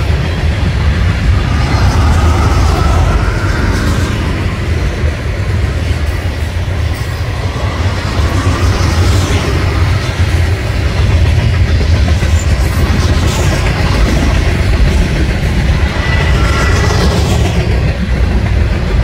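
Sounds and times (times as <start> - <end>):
freight train wheels rumbling on rail: 0.0 - 19.0.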